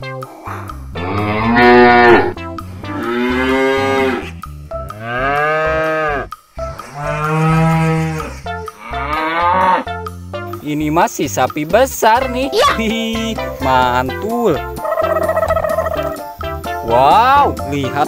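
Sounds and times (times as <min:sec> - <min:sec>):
cows mooing: 0:01.0 - 0:10.0, 0:14.8 - 0:16.2.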